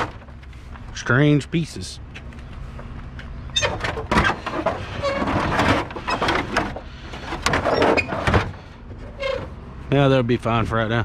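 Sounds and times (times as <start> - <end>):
vehicle engine idling: 0.0 - 5.2, 5.9 - 7.4, 8.5 - 11.0
scrap metal clattering: 3.6 - 9.5.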